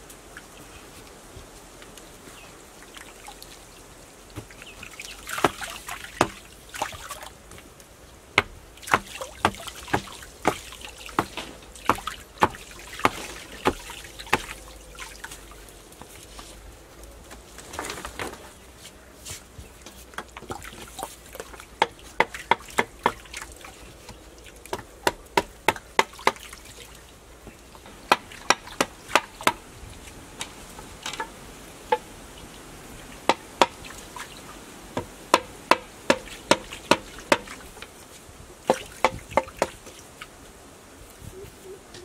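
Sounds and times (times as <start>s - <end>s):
wooden stick knocking bamboo slats: 5.2s - 7.6s, 8.4s - 14.7s, 19.8s - 23.5s, 24.1s - 26.6s, 27.4s - 29.6s, 30.4s - 32.1s, 33.2s - 33.9s, 35.0s - 37.9s, 38.6s - 40.0s.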